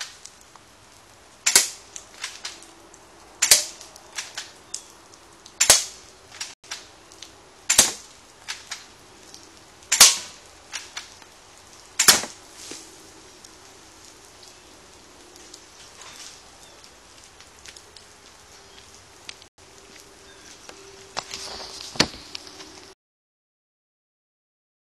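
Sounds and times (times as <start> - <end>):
airsoft gun shots: 1.5 - 1.8, 3.4 - 3.8, 5.6 - 6.0, 7.7 - 8.1, 9.9 - 10.4, 12.0 - 12.4.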